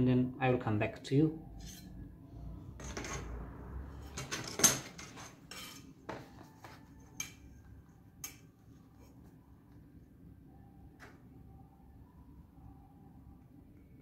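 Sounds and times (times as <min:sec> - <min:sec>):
metallic clinks and knocks: 0:04.1 - 0:05.9.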